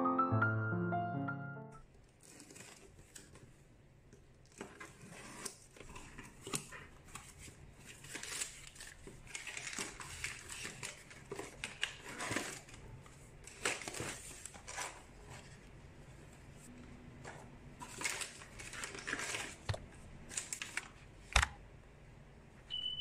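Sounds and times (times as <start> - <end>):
crumpled paper rustling: 2.0 - 3.8, 4.4 - 16.4, 17.2 - 21.3.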